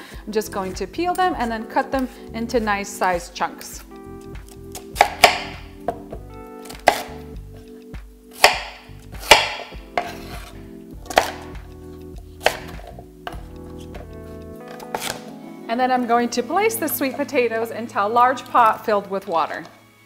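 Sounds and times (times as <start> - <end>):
knife chopping on cutting board: 4.4 - 7.2, 8.4 - 11.7, 12.4 - 14.1, 14.7 - 15.2.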